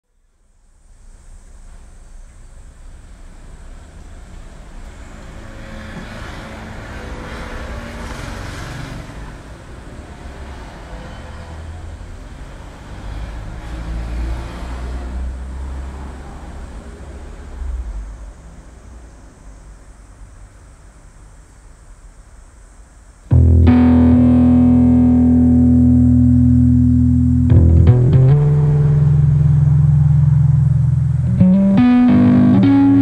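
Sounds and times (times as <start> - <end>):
road traffic rumble: 2.8 - 18.1, 23.3 - 33.0
vehicle passing by: 4.9 - 16.7, 24.3 - 33.0.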